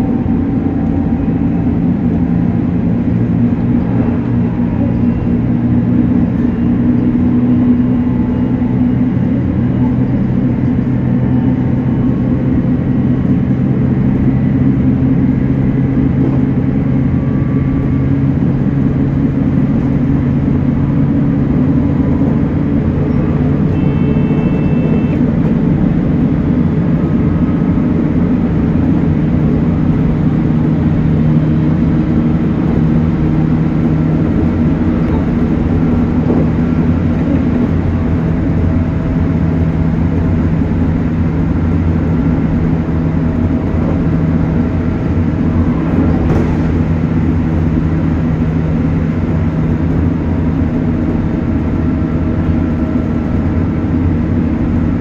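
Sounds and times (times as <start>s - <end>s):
train wheels rumbling on rail: 0.0s - 55.0s
brief higher tone: 23.0s - 25.5s.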